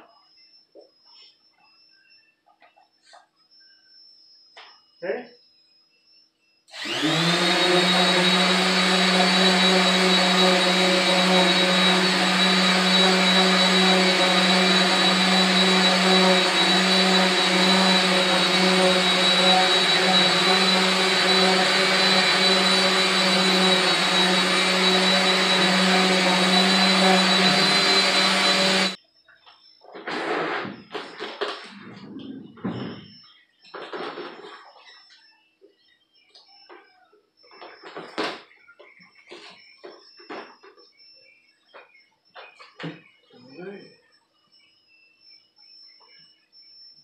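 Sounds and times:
electric buffer humming and whining: 0:06.7 - 0:29.0.

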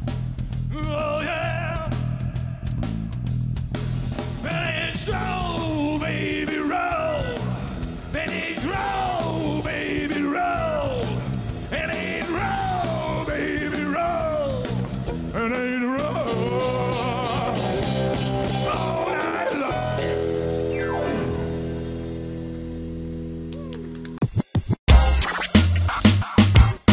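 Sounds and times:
rock band playing live: 0:00.0 - 0:23.6
male lead vocal: 0:00.7 - 0:02.8, 0:04.4 - 0:20.5.

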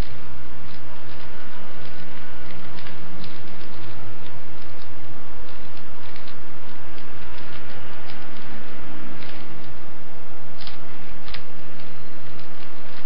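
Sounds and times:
plastic puzzle cube clicking: 0:10.6 - 0:13.0.

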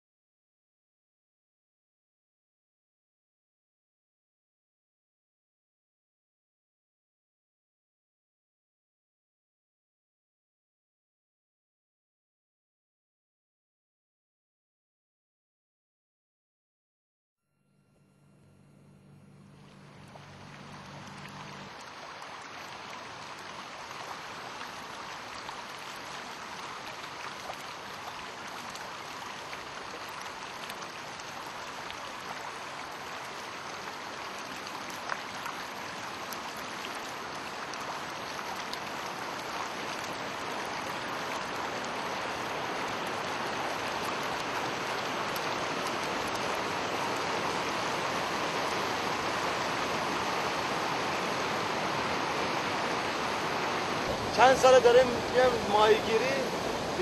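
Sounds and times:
faint low hum: 0:17.5 - 0:21.8
flowing water rushing: 0:19.6 - 0:57.0.

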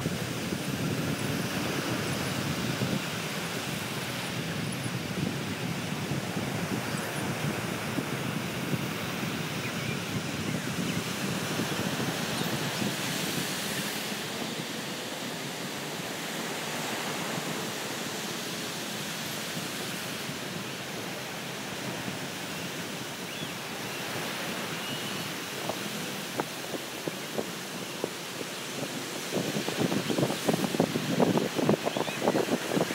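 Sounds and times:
wind buffeting microphone: 0:00.0 - 0:14.1, 0:24.1 - 0:32.9
ocean waves breaking on beach: 0:00.0 - 0:32.9.

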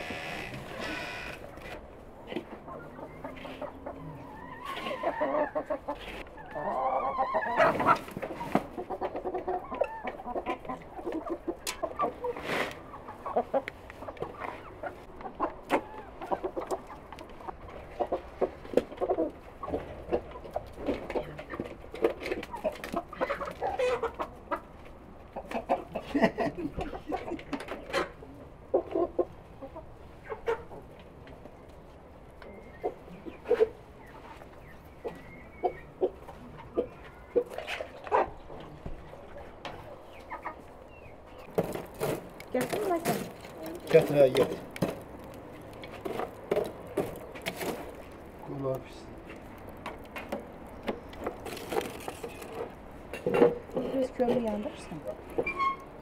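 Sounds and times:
chickens clucking: 0:00.0 - 0:56.0.

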